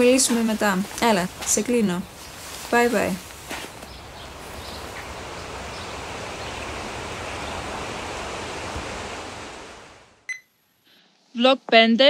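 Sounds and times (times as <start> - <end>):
wind rushing through pines: 0.0 - 10.3
short electronic beep: 10.3 - 10.5.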